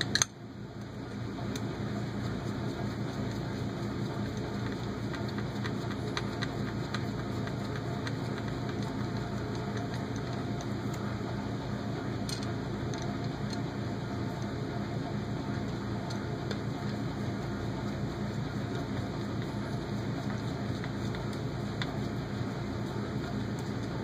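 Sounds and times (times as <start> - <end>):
sharp click: 0.0 - 0.4
steady background hum: 0.0 - 24.0.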